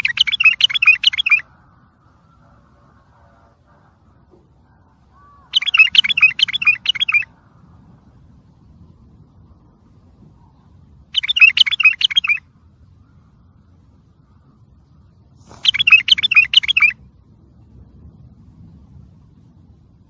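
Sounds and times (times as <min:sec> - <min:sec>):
bulbul warbling song: 0:00.0 - 0:02.2, 0:03.9 - 0:07.4, 0:11.1 - 0:13.2, 0:15.4 - 0:17.1.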